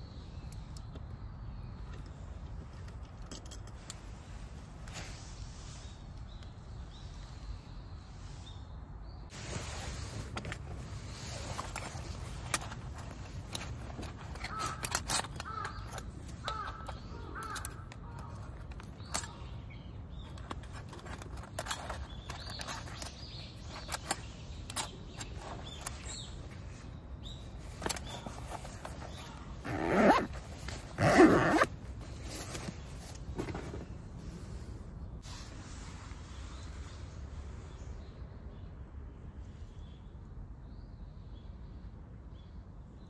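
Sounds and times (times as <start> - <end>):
items clicking and knocking together: 11.6 - 19.4.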